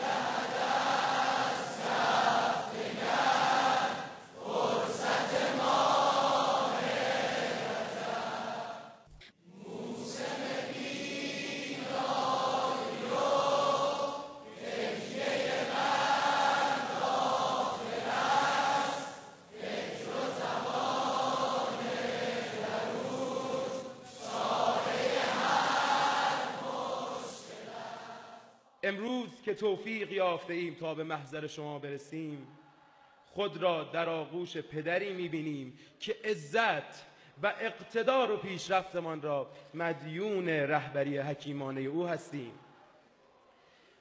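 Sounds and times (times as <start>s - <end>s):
crowd of men chanting: 0.0s - 8.9s, 9.6s - 28.4s.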